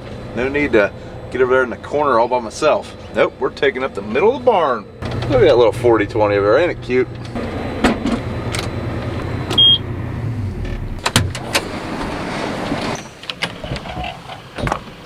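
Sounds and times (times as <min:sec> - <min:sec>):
combine engine humming: 0:00.0 - 0:15.0
short beep: 0:09.5 - 0:09.8.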